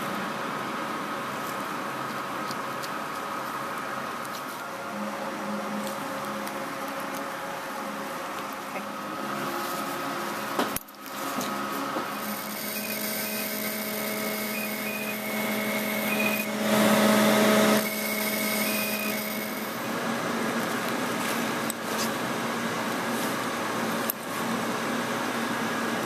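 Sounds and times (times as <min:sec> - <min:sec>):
machine hum: 0:00.0 - 0:26.0
short high beeps: 0:16.0 - 0:16.5.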